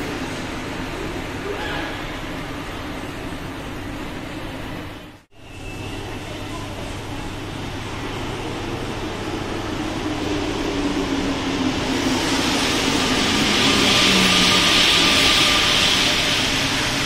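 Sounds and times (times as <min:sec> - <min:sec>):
metro train moving: 0:00.0 - 0:17.0
train hiss: 0:05.4 - 0:17.0.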